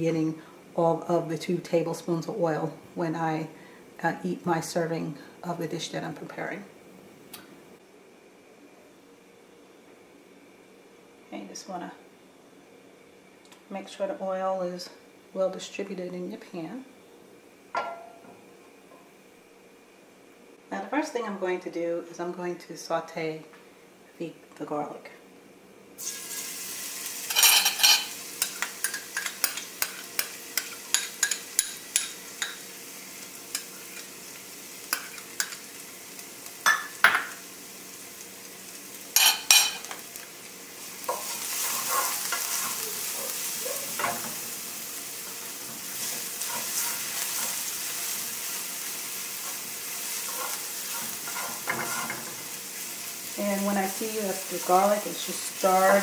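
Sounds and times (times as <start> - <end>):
garlic sizzling in hot oil: 26.0 - 56.0.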